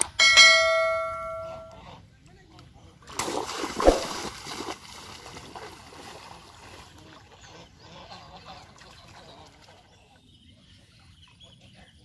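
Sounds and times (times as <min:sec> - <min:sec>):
hard splashing in shallow water: 0:03.1 - 0:07.8
water sloshing and lapping: 0:03.1 - 0:10.1.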